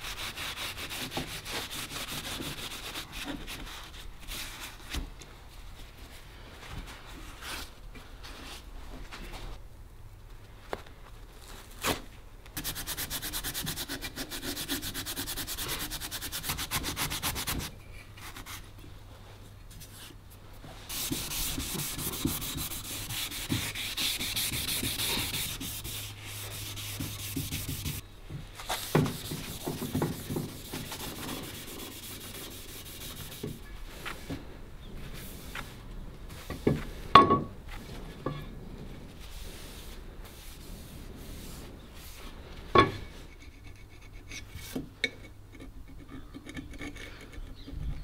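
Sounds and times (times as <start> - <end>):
abrasive pad scrubbing metal: 20.9 - 28.0.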